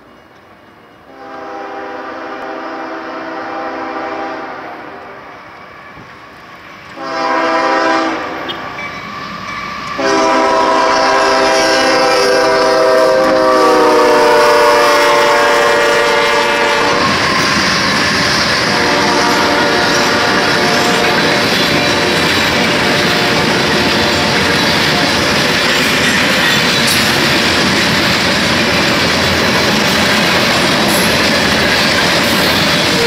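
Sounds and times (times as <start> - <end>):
locomotive air horn blasts: 1.1 - 5.3, 7.0 - 8.7, 10.0 - 17.4, 18.7 - 25.2.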